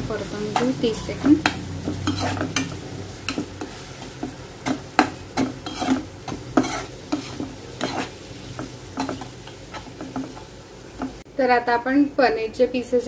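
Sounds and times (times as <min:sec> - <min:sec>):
paste sizzling in oil: 0:00.0 - 0:11.3
metal spatula scraping a pan: 0:00.1 - 0:10.4.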